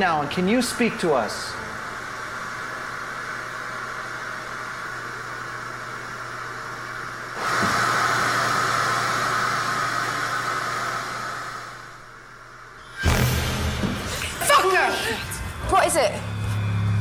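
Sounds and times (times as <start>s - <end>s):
television static hiss: 0.0s - 7.4s.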